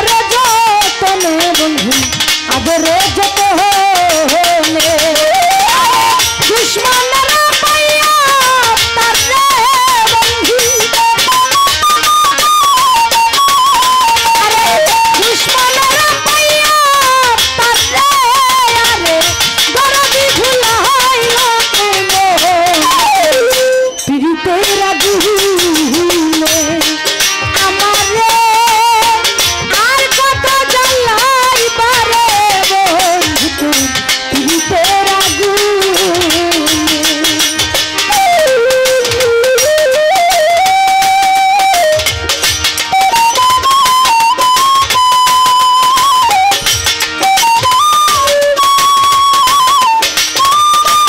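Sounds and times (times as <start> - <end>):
woman singing folk song: 0.0 - 11.0, 15.2 - 23.2, 24.1 - 26.9, 27.6 - 37.5
drum strokes: 0.0 - 51.0
live band with percussion beat: 0.0 - 51.0.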